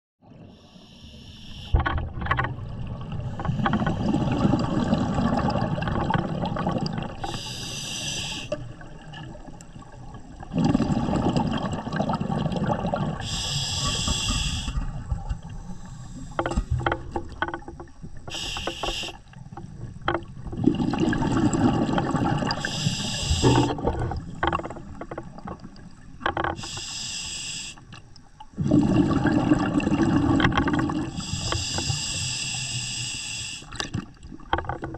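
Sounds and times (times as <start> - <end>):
hissing regulator inhale: 0.4 - 1.8, 7.2 - 8.6, 13.2 - 14.9, 15.6 - 16.8, 18.3 - 19.3, 22.5 - 23.8, 26.6 - 27.9, 31.1 - 33.8
gurgling exhaled bubbles: 2.0 - 7.6, 8.2 - 17.4, 19.4 - 26.2, 28.6 - 31.5.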